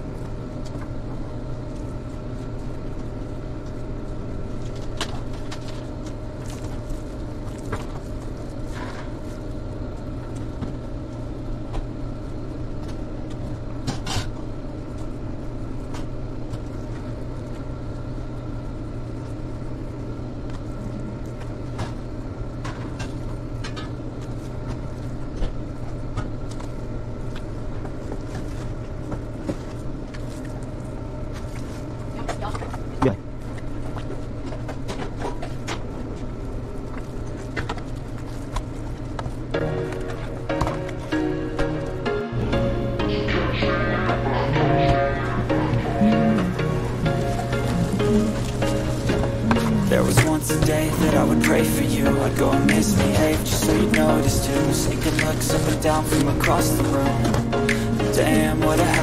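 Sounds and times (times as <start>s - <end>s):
kitchen machinery humming: 38.8s - 59.0s.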